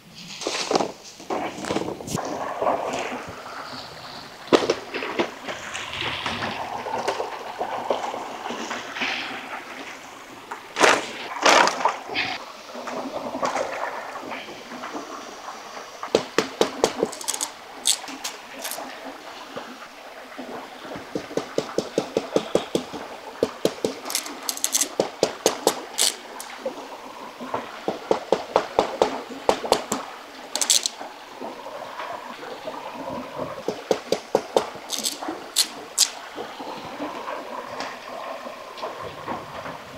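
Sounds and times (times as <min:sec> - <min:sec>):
stream rushing: 0:02.0 - 0:39.9
machete cutting bamboo: 0:16.2 - 0:18.8, 0:23.5 - 0:26.5, 0:30.6 - 0:30.9, 0:33.9 - 0:36.2.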